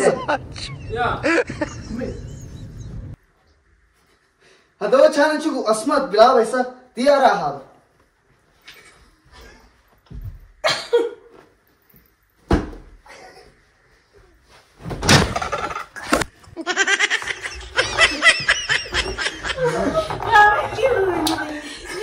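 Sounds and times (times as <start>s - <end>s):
people laughing heartily: 0.0s - 2.6s, 16.6s - 20.3s
cushions thudding: 12.4s - 13.0s, 14.8s - 15.5s.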